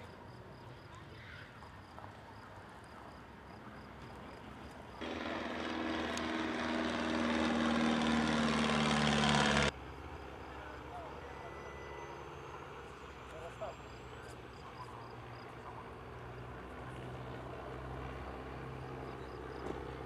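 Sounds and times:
biplane engine droning: 5.0 - 20.0.

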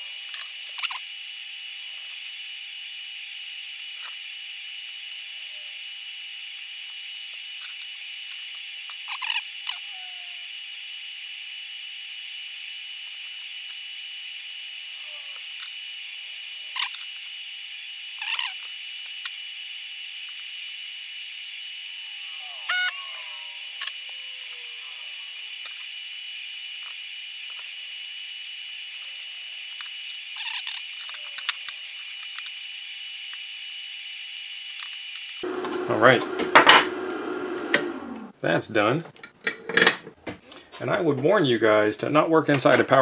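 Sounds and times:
faint squeaks: 21.9 - 25.5.

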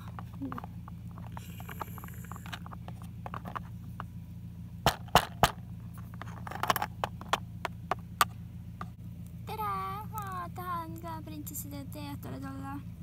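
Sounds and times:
plastic toys tapping and clicking: 0.0 - 3.7
steady low hum: 0.0 - 13.0.

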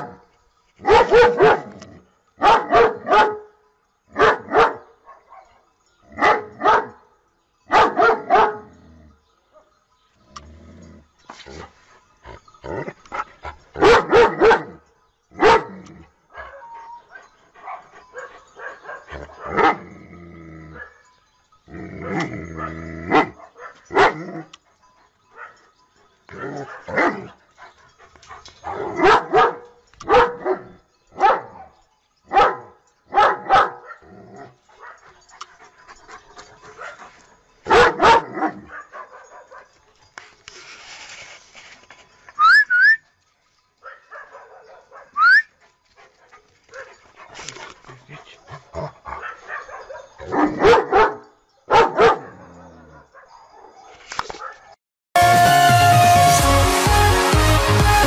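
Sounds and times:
dog barking: 0.8 - 1.8, 2.4 - 3.5, 4.2 - 5.5, 6.2 - 7.0, 7.7 - 8.7, 13.8 - 14.8, 15.4 - 15.7, 16.4 - 19.8, 22.6 - 24.3, 26.4 - 27.3, 28.3 - 34.1, 34.8 - 35.0, 37.6 - 39.8, 43.8 - 45.4, 49.1 - 54.8.

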